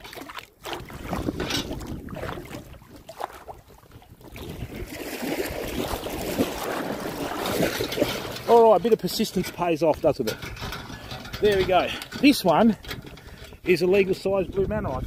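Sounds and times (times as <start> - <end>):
net splashing through water: 0.0 - 8.6
wind rumbling on microphone: 0.6 - 8.5, 9.9 - 15.0.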